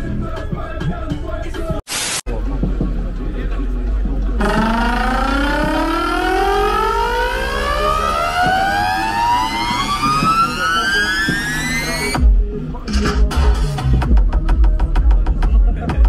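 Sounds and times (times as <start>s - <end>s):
rising tone frequency sweep: 4.4s - 12.1s.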